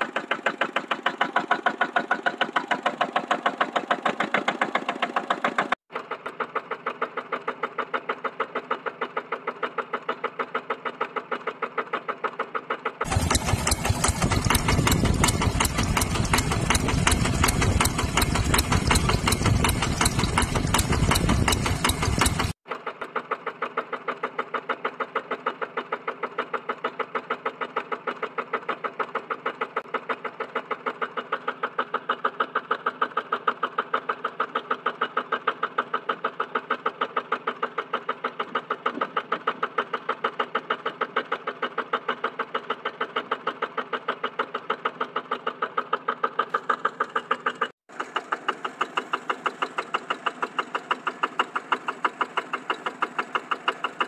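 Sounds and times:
diesel engine running: 0:13.0 - 0:22.6, 0:45.8 - 0:54.0.

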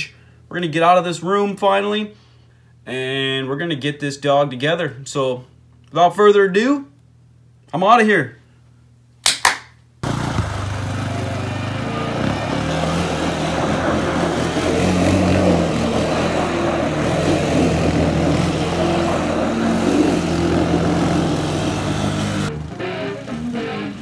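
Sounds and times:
quad engine revving: 0:10.0 - 0:24.0.

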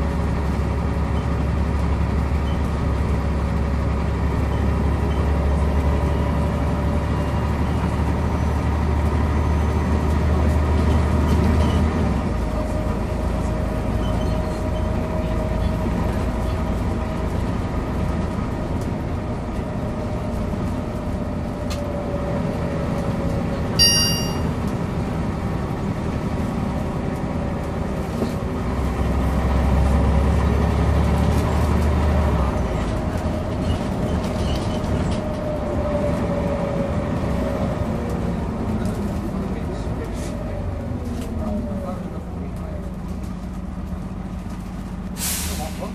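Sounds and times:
bus diesel engine droning: 0:00.0 - 0:45.9
road noise: 0:00.0 - 0:45.9
short high chime: 0:23.8 - 0:24.5.

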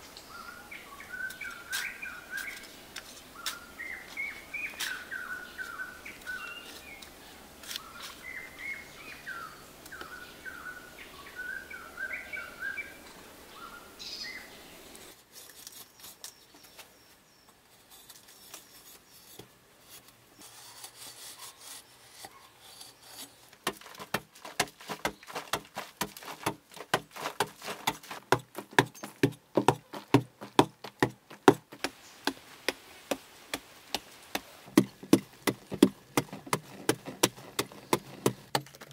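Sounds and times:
birds chirping and singing: 0:00.2 - 0:07.1, 0:07.7 - 0:14.8
hand hoe chopping packed earth: 0:19.3 - 0:38.9.

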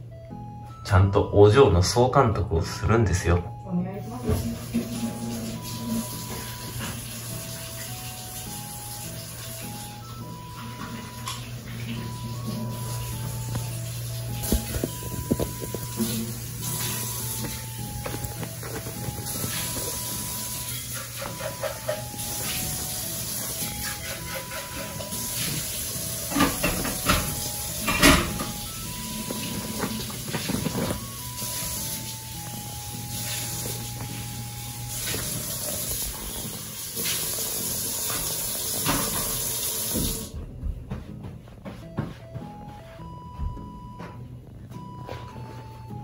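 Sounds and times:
soft background music: 0:00.0 - 0:46.0
crinkly fabric bag rustling: 0:29.4 - 0:31.0.

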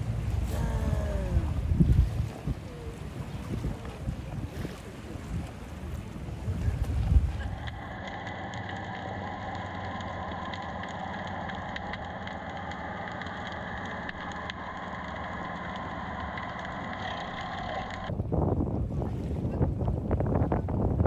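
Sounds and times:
underwater engine drone: 0:00.0 - 0:18.3
faint clicks: 0:06.6 - 0:18.1.

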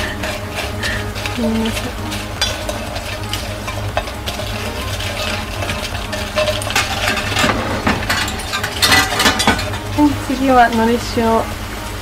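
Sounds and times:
chips rustling: 0:00.0 - 0:10.2
chopsticks clinking on metal bowl: 0:00.0 - 0:10.2
steady low hum: 0:00.0 - 0:12.0.

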